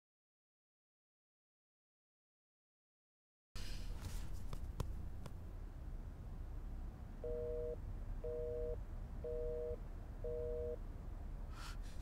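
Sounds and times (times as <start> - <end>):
telephone busy signal beeps: 7.2 - 10.8.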